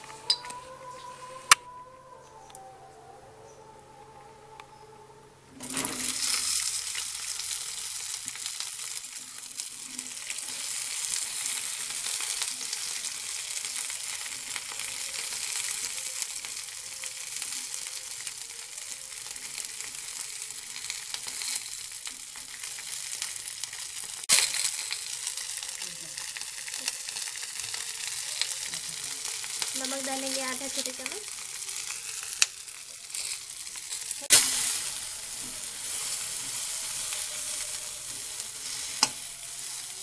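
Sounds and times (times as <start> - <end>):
okra sizzling in hot oil: 0.0 - 1.6, 5.6 - 40.0
spatula stirring: 27.2 - 40.0.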